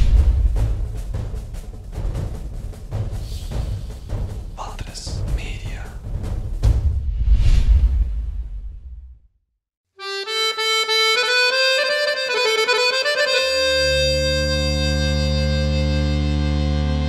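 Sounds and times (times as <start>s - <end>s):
solo melody: 10.0s - 17.0s
sustained low chord: 13.6s - 17.0s.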